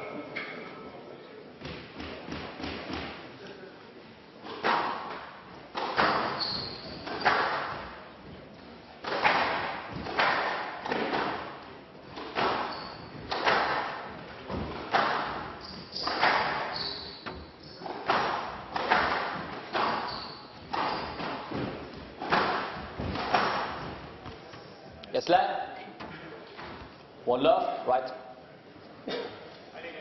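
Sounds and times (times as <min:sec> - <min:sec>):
squash ball hitting rackets and walls: 0:01.6 - 0:03.3, 0:04.4 - 0:24.6
shoe squeaks on court floor: 0:06.0 - 0:07.6, 0:12.4 - 0:13.5, 0:15.5 - 0:17.9, 0:19.8 - 0:21.6.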